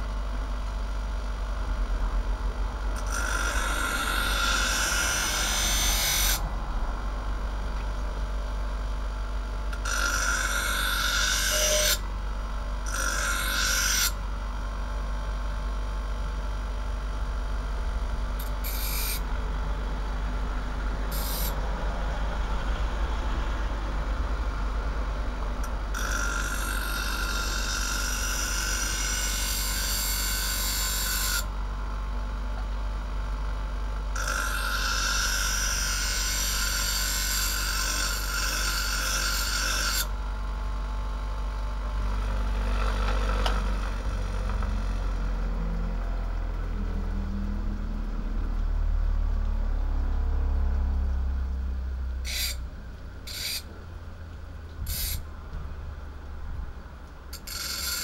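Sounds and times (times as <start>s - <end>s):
bench grinder motor hum: 2.5s - 6.8s, 7.5s - 51.2s, 52.2s - 53.8s, 54.8s - 55.4s, 57.0s - 58.0s
steel grinding on wheel: 3.0s - 6.4s, 9.8s - 12.0s, 12.9s - 14.2s, 18.4s - 19.3s, 21.1s - 21.6s, 25.9s - 31.5s, 34.2s - 40.1s, 52.2s - 52.6s, 53.2s - 53.8s, 54.9s - 55.2s, 57.3s - 58.0s.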